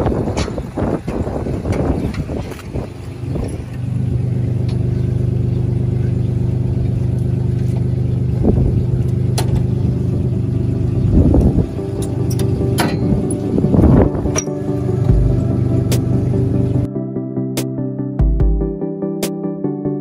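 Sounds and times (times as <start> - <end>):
tractor engine running: 0.0 - 16.9
metal clanks: 12.0 - 13.5, 14.3 - 14.6.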